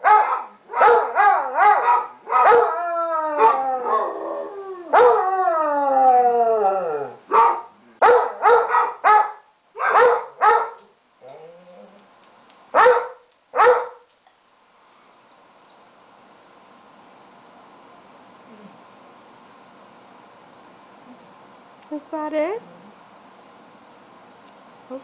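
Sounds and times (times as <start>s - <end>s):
dog baying barks: 0.0s - 2.7s, 7.3s - 11.4s, 12.8s - 14.1s
dog howling: 0.8s - 7.2s.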